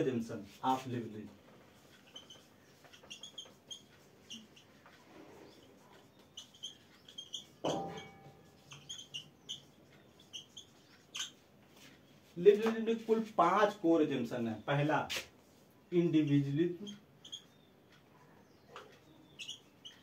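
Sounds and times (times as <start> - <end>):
marker squeaking on whiteboard: 0.0 - 20.0
loud knock with ringing: 7.6 - 8.4.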